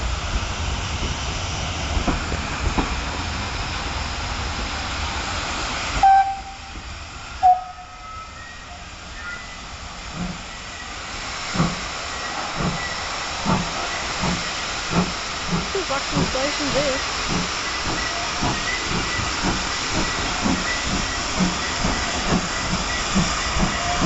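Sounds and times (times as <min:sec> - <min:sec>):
hiss of steam: 0:00.0 - 0:24.0
steam train rumbling: 0:00.0 - 0:24.0
steam locomotive whistle toots: 0:06.0 - 0:06.8, 0:07.4 - 0:09.6, 0:20.8 - 0:24.0.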